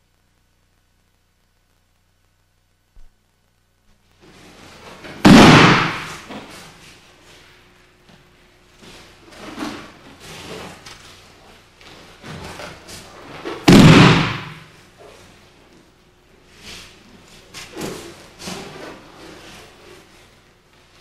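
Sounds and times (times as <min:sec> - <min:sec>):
body slamming onto mat: 0:05.2 - 0:06.3, 0:13.7 - 0:14.7.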